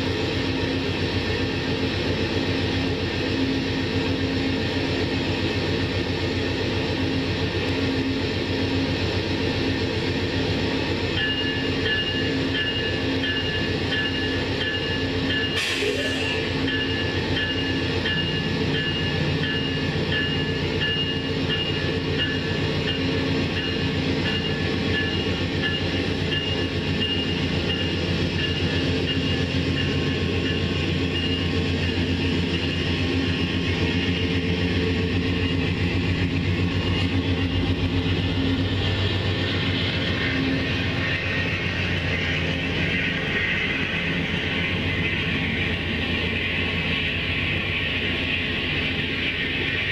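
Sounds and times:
locomotive engine running: 0.0s - 49.9s
crossing bell ringing: 10.7s - 49.9s.

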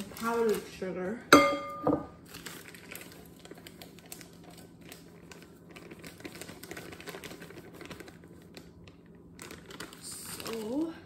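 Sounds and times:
plastic bag rustling: 0.0s - 1.1s, 2.1s - 11.0s
powdered sugar pouring from bag: 2.2s - 10.9s.

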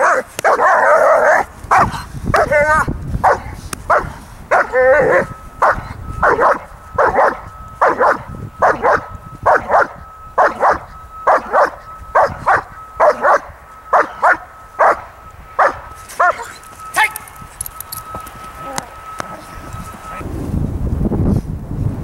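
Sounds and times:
dog barking: 0.0s - 2.6s, 3.2s - 17.1s
dog yelping: 0.0s - 17.4s.

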